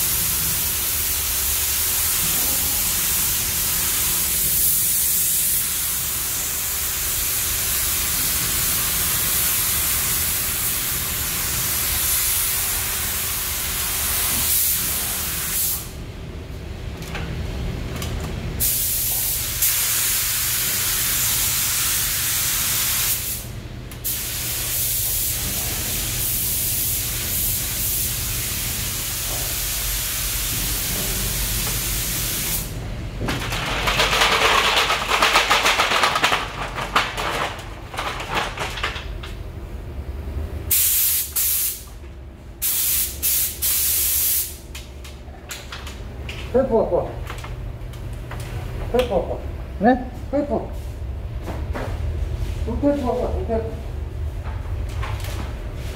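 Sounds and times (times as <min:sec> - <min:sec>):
paint spray gun hissing: 0:00.0 - 0:15.9, 0:26.0 - 0:32.7, 0:40.7 - 0:41.9, 0:42.6 - 0:44.6
steady low hum: 0:00.0 - 0:34.1, 0:36.3 - 0:55.9.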